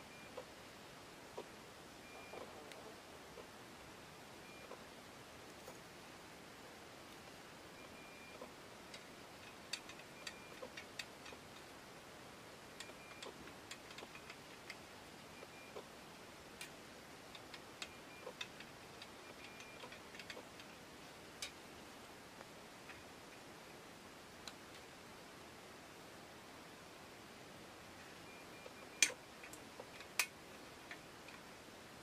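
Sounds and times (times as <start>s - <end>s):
metal frame clicking and rattling: 8.9s - 11.6s, 16.6s - 20.8s.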